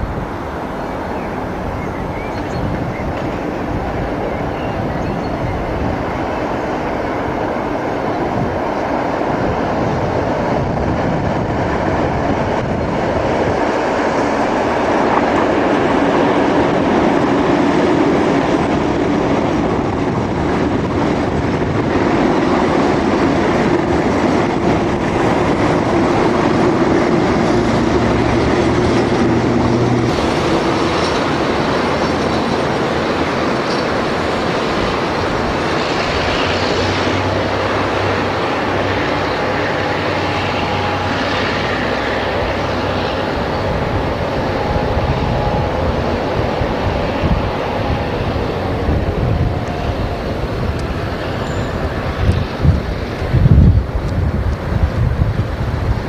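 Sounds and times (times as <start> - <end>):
diesel locomotive engine drone: 0.0 - 56.0
train wheel noise: 0.0 - 56.0.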